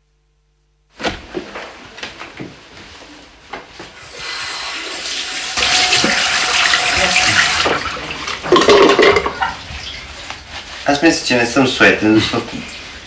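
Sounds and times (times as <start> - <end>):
tap water running into sink: 4.6 - 9.6.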